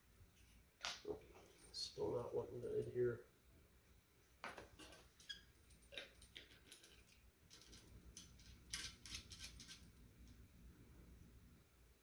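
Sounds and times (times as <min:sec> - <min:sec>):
small clicks and scratches: 0:04.6 - 0:10.4.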